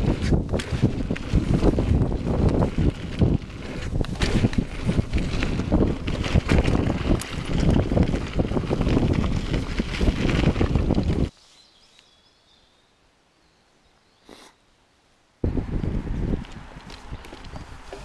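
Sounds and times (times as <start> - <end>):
bike rattling and clattering: 0.0 - 11.3, 16.2 - 18.0
tyre rumble: 0.0 - 11.3
wind on microphone: 0.0 - 11.3, 15.4 - 18.0.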